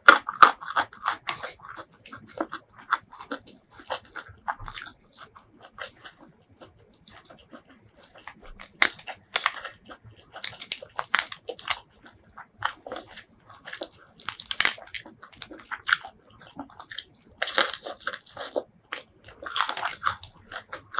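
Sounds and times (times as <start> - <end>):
crunchy chewing: 0.0 - 20.9
prawn shells crackling: 8.1 - 20.9.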